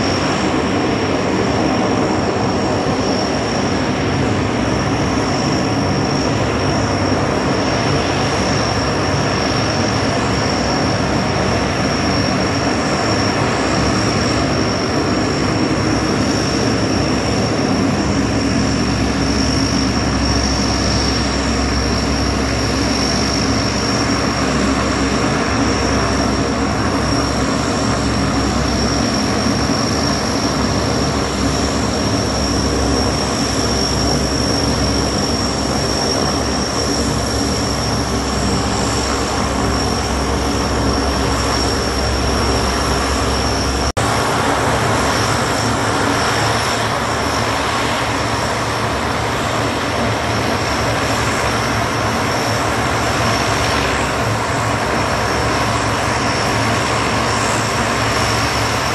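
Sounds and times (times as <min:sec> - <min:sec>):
high engine whine: 0:00.0 - 0:58.9
turboprop engines droning: 0:00.0 - 0:58.9.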